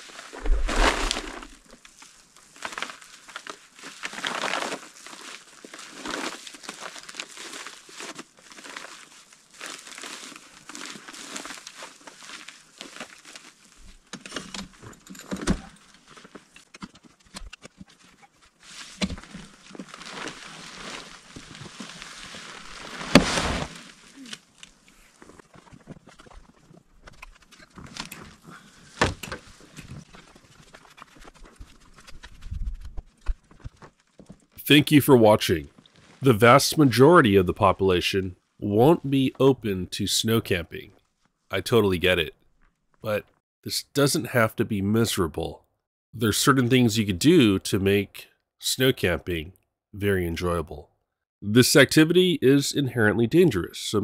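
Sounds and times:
tarp crinkling and rustling: 0.0s - 34.6s, 35.7s - 36.9s.

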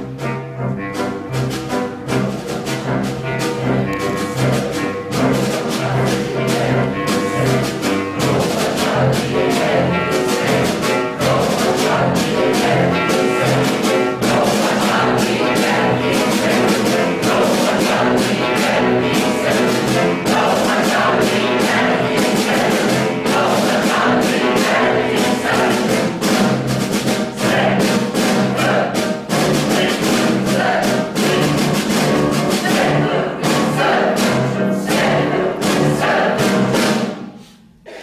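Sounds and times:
clarinet: 0.0s - 8.2s
piano: 0.0s - 38.0s
timpani: 0.0s - 38.0s
large choir singing: 2.3s - 38.0s.

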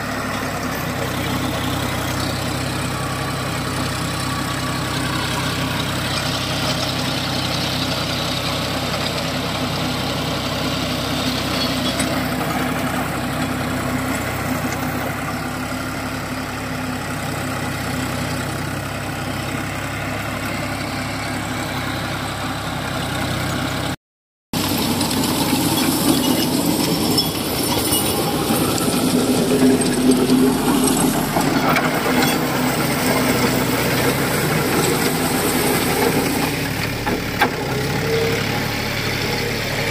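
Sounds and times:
rotavator churning dry soil: 0.0s - 16.3s, 24.6s - 39.9s
tractor diesel engine running: 0.0s - 24.0s, 24.6s - 39.9s.

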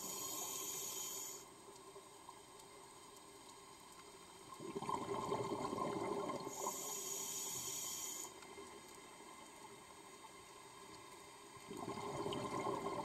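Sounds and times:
regulator inhalation hiss: 0.0s - 1.5s, 6.5s - 8.4s
exhaled bubbles rushing: 4.6s - 6.5s, 11.7s - 13.0s.

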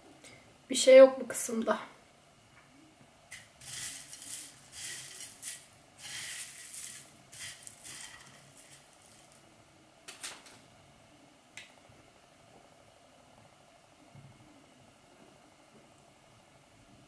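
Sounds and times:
dry crumbs rustling and crackling: 3.3s - 9.5s.

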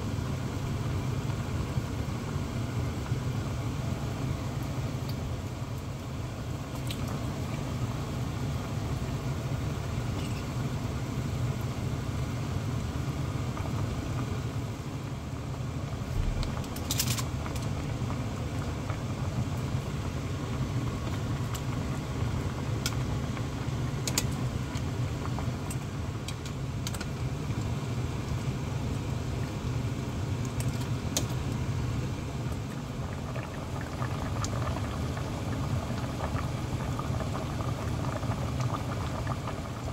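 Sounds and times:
steady low rumble: 13.4s - 39.9s.

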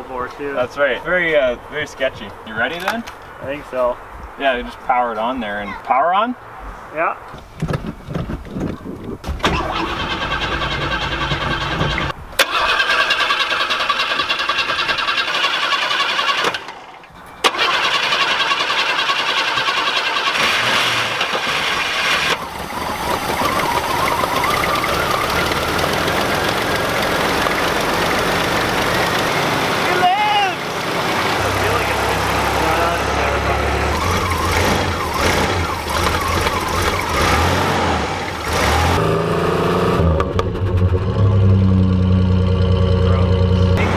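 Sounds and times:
starter motor cranking: 9.4s - 29.8s
pickup engine running: 17.6s - 39.0s, 40.0s - 43.9s.

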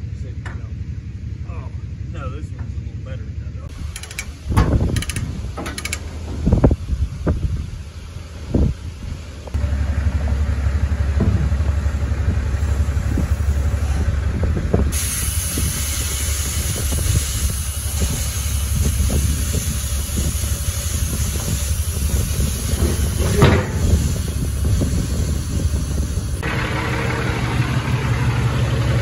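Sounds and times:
diesel truck engine rumbling: 0.0s - 29.0s
metal clunk: 3.7s - 6.6s, 22.7s - 24.2s
air hissing: 3.7s - 7.7s, 12.4s - 26.6s.

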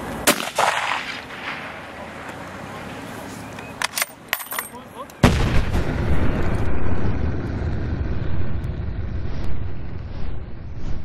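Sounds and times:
boom with low rumble: 5.2s - 11.0s.

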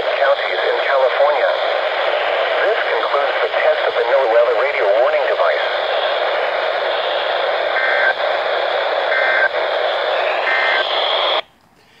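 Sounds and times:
radio speaker static: 0.0s - 11.5s
two-tone data bursts: 4.7s - 11.4s.

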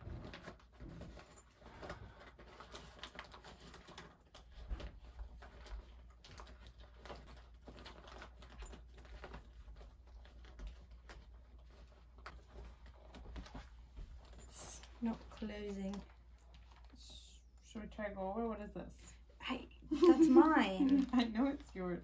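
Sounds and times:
bag clicks and rustles: 0.0s - 17.1s.

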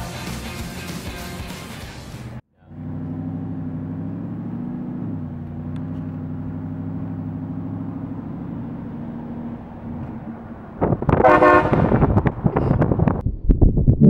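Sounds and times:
truck engine running: 0.0s - 12.5s
loud train horn blast: 11.2s - 12.0s.

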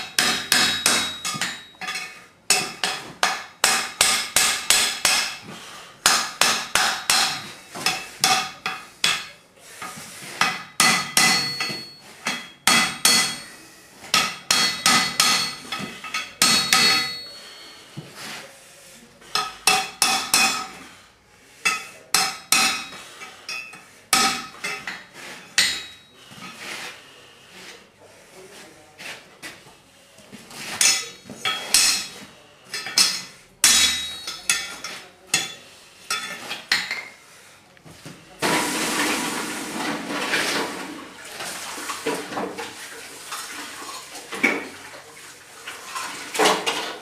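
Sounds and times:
hammer striking steel on anvil: 0.0s - 5.4s, 6.0s - 9.4s, 10.4s - 13.5s, 14.1s - 17.4s, 19.3s - 20.8s, 21.6s - 26.1s, 30.8s - 32.1s, 32.7s - 37.0s.

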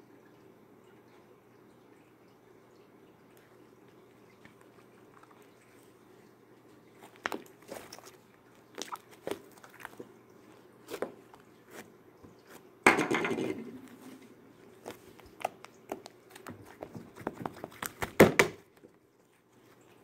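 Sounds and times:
slime squelch: 6.9s - 12.7s, 13.8s - 18.2s.

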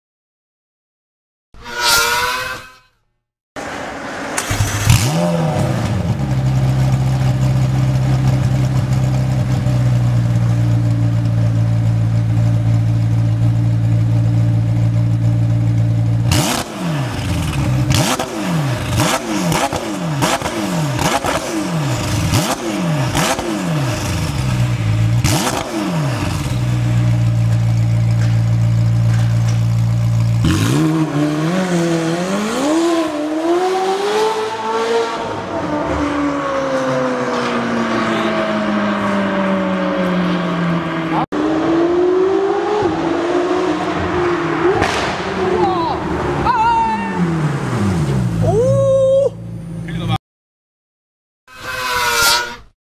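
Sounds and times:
sports car engine revving: 4.4s - 13.5s, 14.1s - 27.7s, 30.1s - 46.5s
exhaust cracks: 44.7s - 45.7s.

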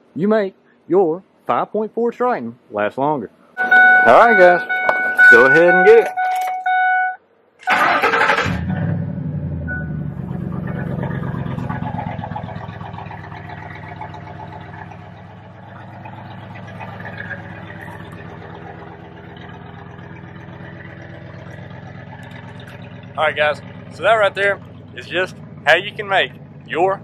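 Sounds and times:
car engine cranking: 3.6s - 7.0s, 7.6s - 27.0s
car engine idling: 7.6s - 27.0s.

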